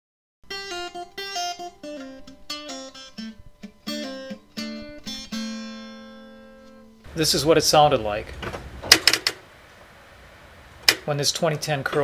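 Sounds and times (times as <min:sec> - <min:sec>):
acoustic guitar melody: 0:00.5 - 0:09.4.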